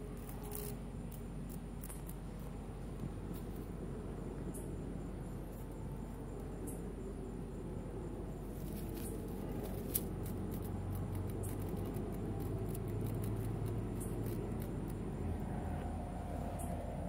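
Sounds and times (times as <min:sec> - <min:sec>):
low rumble: 0:07.7 - 0:17.0
cat rustling in dry leaves: 0:08.4 - 0:10.7.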